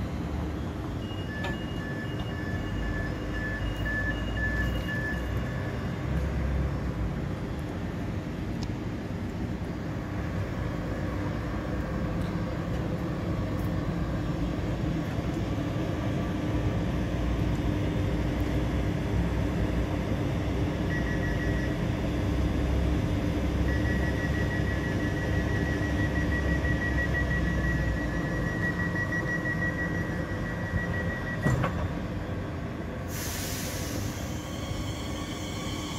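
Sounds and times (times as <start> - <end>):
electric train humming: 21.8 - 35.9.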